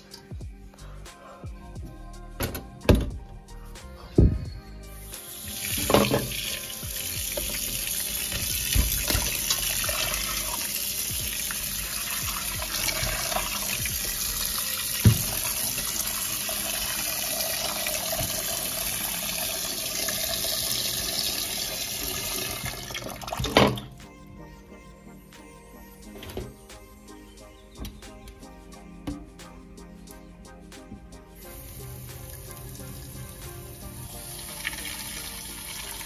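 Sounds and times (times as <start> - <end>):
tap water running into sink: 5.3 - 23.9, 31.5 - 36.0.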